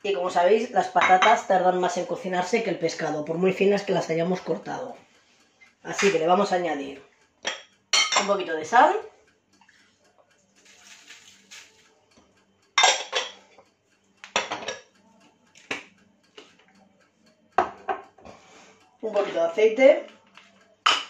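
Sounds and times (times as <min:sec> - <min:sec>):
kitchenware clattering on countertop: 0:07.4 - 0:08.3, 0:12.8 - 0:13.4, 0:14.2 - 0:14.9, 0:17.6 - 0:18.1
salt shaker hiss: 0:10.6 - 0:11.8.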